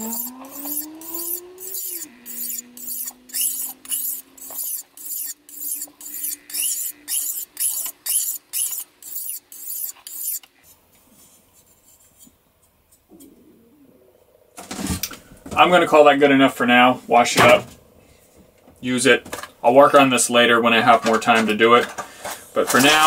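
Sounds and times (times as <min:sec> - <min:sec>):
knife scraping on sharpening stone: 0:00.0 - 0:10.5.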